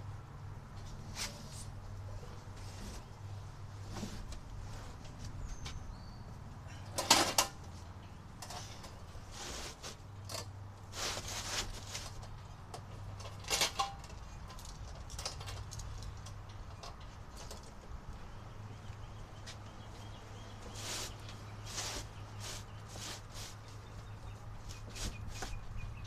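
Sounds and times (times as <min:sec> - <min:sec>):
knocks and clinks from handling gear: 0:11.9 - 0:17.8.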